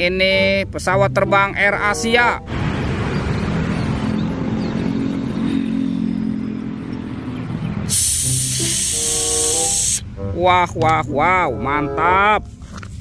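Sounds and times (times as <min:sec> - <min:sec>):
loud hiss of spray: 0:07.9 - 0:10.0.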